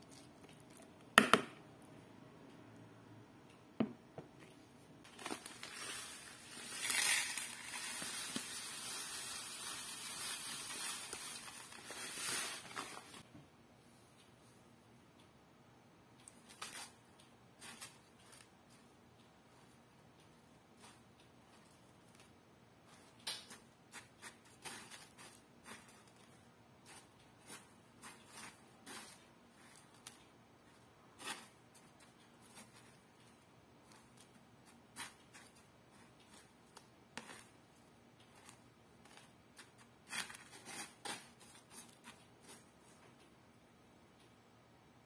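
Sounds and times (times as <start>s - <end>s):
chopsticks scraping breadcrumbs: 23.5s - 30.2s, 38.4s - 42.6s.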